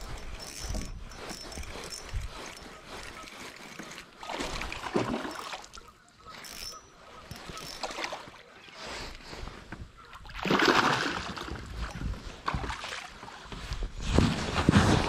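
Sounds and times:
splash in water: 10.4s - 11.5s.

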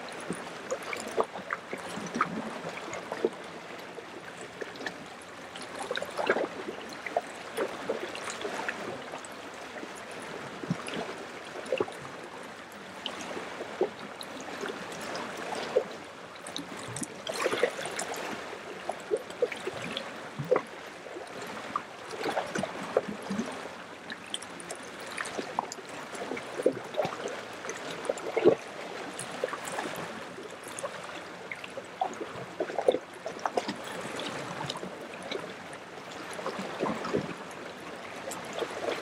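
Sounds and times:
small waves lapping at shore: 0.0s - 39.0s
short water splashes: 16.6s - 18.5s.

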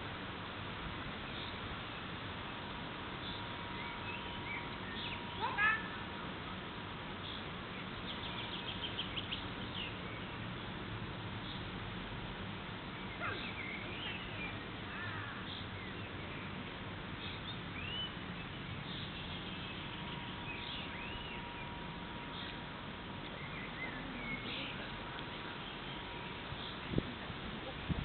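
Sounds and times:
steady background hiss: 0.0s - 28.0s
bird chirps and whistles: 17.4s - 18.2s.

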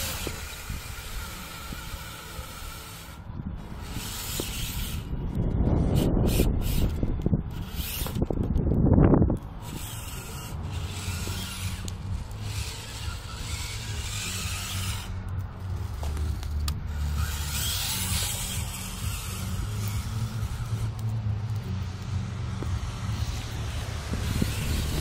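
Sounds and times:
small electric motor and gears whirring: 0.0s - 25.0s
steady low rumble: 0.0s - 25.0s.

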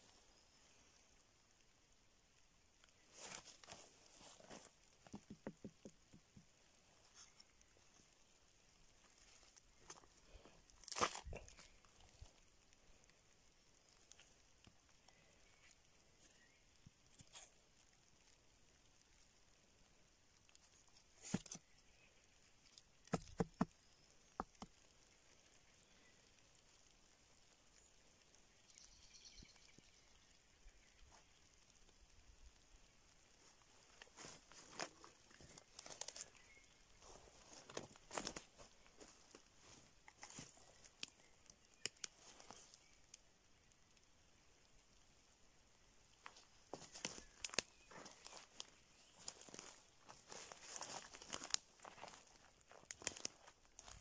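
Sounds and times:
faint rustle: 0.0s - 54.0s
fungus creaking and clicking: 2.8s - 18.4s, 20.3s - 32.0s, 33.4s - 44.1s, 46.2s - 54.0s.

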